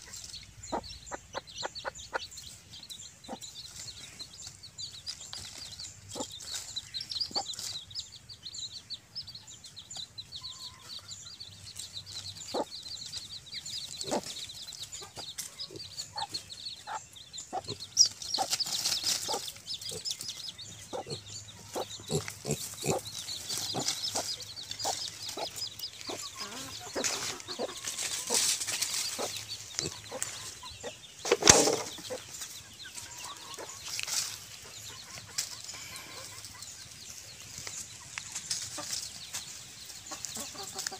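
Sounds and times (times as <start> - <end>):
chickens clucking: 0.0 - 40.9
rustling and scratching in leaves: 3.5 - 8.1, 17.6 - 40.9
pigs grunting: 21.8 - 23.1.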